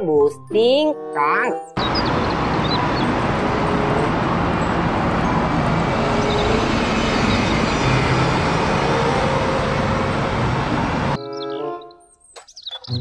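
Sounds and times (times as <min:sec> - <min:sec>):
road and traffic noise: 0:01.7 - 0:13.0
bus engine hum: 0:01.8 - 0:11.2.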